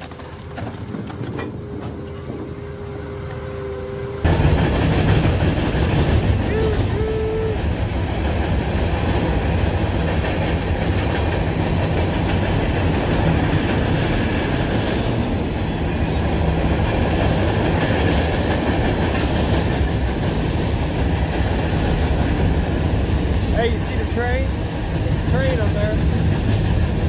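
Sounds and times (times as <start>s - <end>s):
freight train rumbling over bridge: 0.4s - 27.0s.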